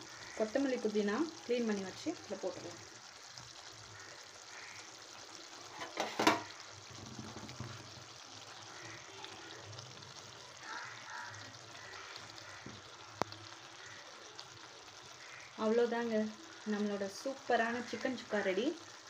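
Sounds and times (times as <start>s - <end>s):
food sizzling in a frying pan: 0.0s - 19.0s
spatula clattering against pan: 5.8s - 6.5s.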